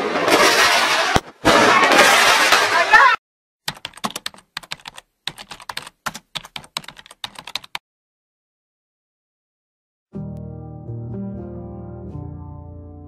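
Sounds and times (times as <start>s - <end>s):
rapid keyboard typing: 3.7s - 7.8s.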